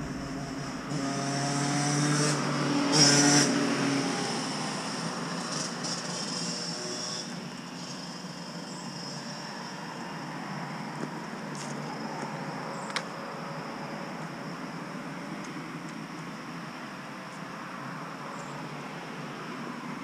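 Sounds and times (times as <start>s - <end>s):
vehicle passing: 0.0s - 4.3s.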